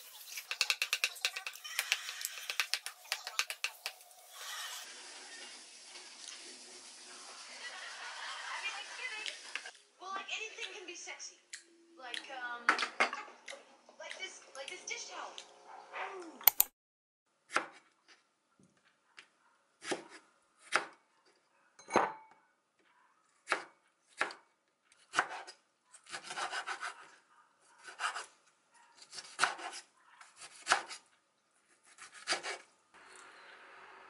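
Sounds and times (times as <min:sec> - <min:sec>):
knife chopping on wooden board: 0:00.4 - 0:04.0, 0:25.1 - 0:25.5, 0:29.1 - 0:31.0.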